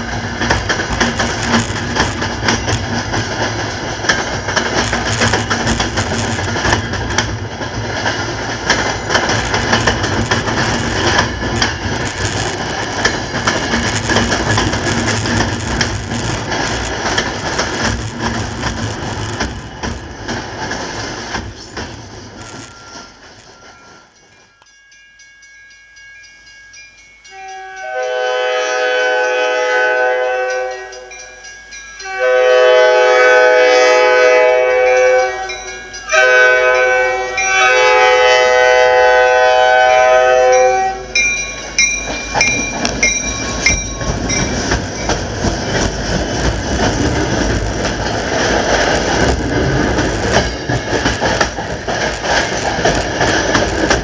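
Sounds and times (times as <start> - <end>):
train coaches rumbling over rails: 0.0 - 24.7, 27.2 - 54.0
locomotive engine and wheels: 0.0 - 54.0
locomotive air horn blasts: 27.3 - 31.2, 32.0 - 41.2.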